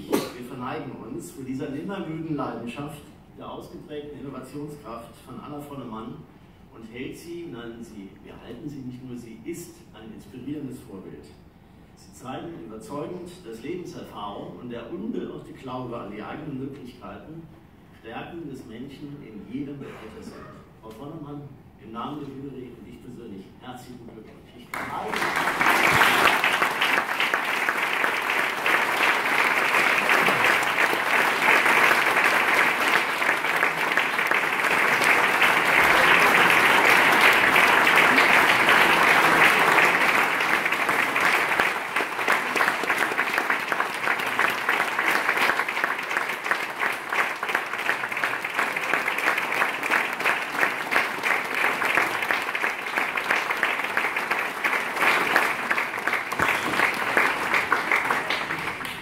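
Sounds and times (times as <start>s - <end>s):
audience applauding: 24.7s - 59.0s.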